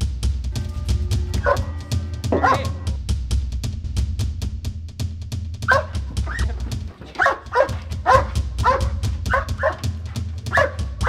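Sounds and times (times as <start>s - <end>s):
music with steady beat: 0.0s - 11.0s
dog barking: 1.4s - 3.0s, 5.6s - 11.0s.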